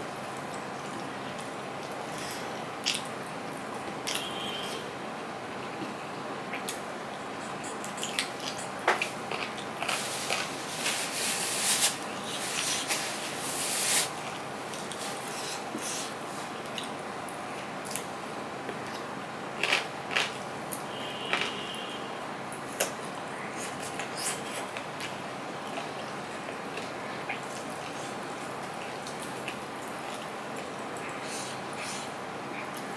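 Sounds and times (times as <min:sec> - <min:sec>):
chewing: 0:05.6 - 0:10.9
background hiss: 0:09.8 - 0:17.2.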